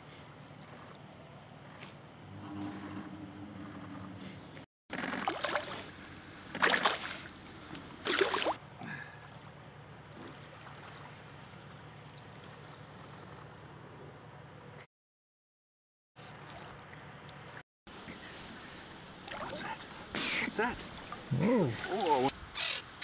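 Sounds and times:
low steady hum: 0:00.1 - 0:04.6, 0:05.2 - 0:14.8
water splashing: 0:04.9 - 0:09.5, 0:10.1 - 0:12.9, 0:18.4 - 0:22.4.

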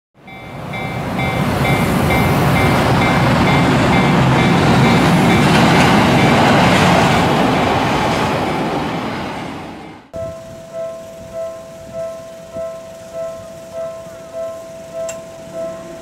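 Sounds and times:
level-crossing warning bell ringing: 0:00.2 - 0:06.8, 0:10.2 - 0:16.0
passing train rumble: 0:00.2 - 0:16.0.

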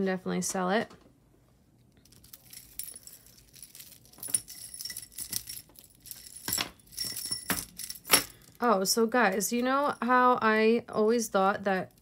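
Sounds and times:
metal jewelry clinking: 0:02.0 - 0:08.6.

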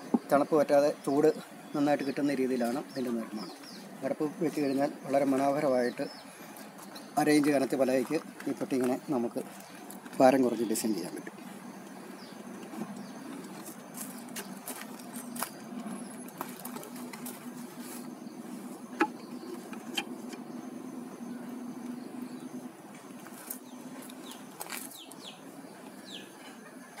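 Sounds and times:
bird chirping: 0:00.0 - 0:27.0
honeybees buzzing: 0:00.0 - 0:27.0
wooden hive lid clicks and knocks: 0:18.9 - 0:20.6.

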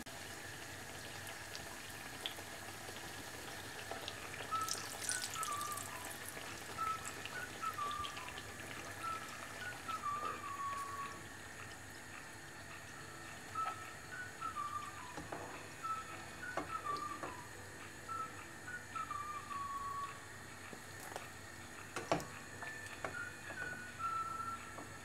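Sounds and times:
oil sizzling and crackling: 0:00.0 - 0:17.2
faint wavering whistle tone: 0:04.4 - 0:11.3, 0:12.7 - 0:20.4, 0:22.6 - 0:25.0.

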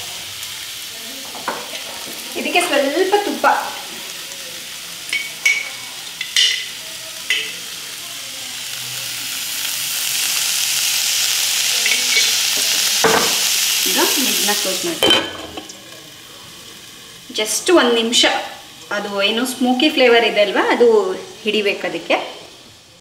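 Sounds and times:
ghee sizzling on hot charcoal: 0:00.0 - 0:23.0
metal lid clink: 0:15.0 - 0:15.7.

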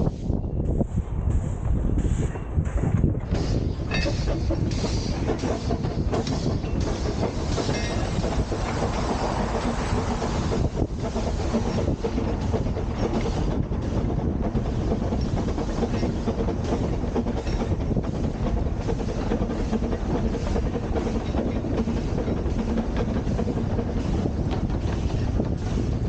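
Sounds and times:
steam train low rumble: 0:00.0 - 0:26.0.

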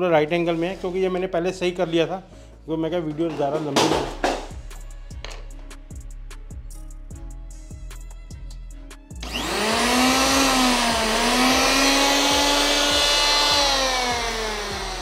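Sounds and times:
music with steady drum beat: 0:03.1 - 0:15.0
electric planer motor whining: 0:09.2 - 0:15.0.

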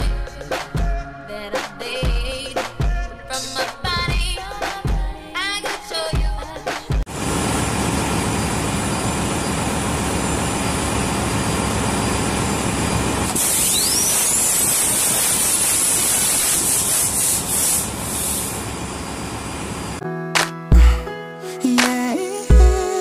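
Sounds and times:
air motor turning over engine: 0:07.1 - 0:20.0
high hiss with rising whistle: 0:08.1 - 0:20.0.

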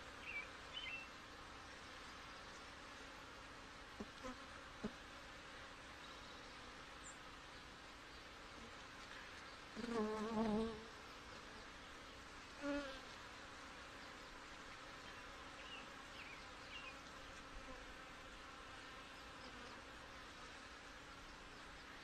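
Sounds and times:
bee buzzing past microphone: 0:09.8 - 0:11.0, 0:12.6 - 0:13.1.

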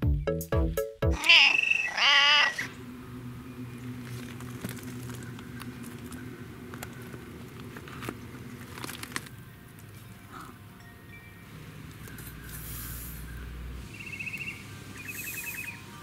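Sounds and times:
cat meowing: 0:01.2 - 0:02.8
low hum: 0:01.3 - 0:15.4.

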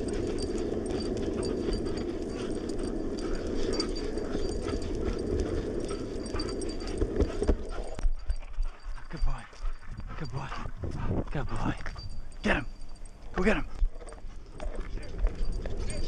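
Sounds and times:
longboard wheels rolling on asphalt: 0:00.0 - 0:08.0, 0:14.0 - 0:16.0
dog paws running: 0:00.0 - 0:16.0.

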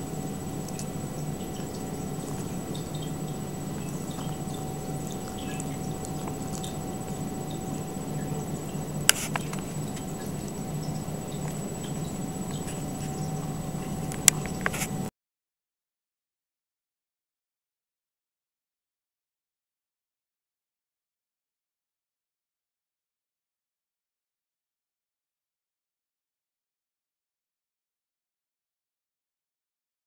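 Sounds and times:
low room hum: 0:00.0 - 0:15.1.

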